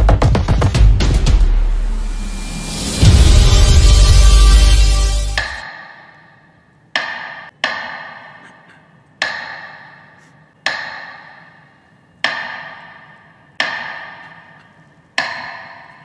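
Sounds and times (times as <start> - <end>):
bell tolling: 2.1 - 5.6.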